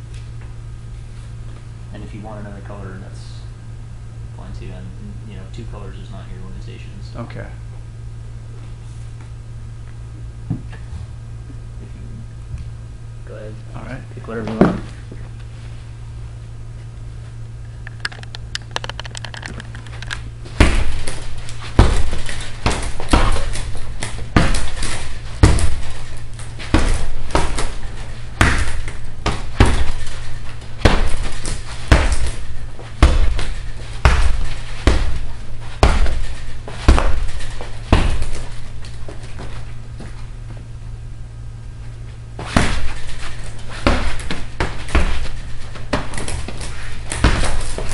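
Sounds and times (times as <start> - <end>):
punching bag being struck: 20.4 - 39.6, 42.4 - 47.9.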